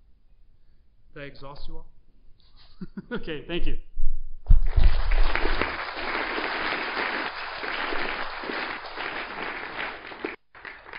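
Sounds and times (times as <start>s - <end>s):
audience applauding: 4.6s - 10.9s.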